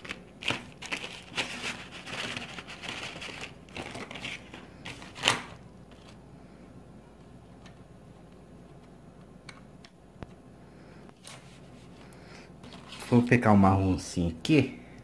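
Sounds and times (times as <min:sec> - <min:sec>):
pencils crinkling and rustling: 0:00.0 - 0:06.2, 0:11.2 - 0:13.6.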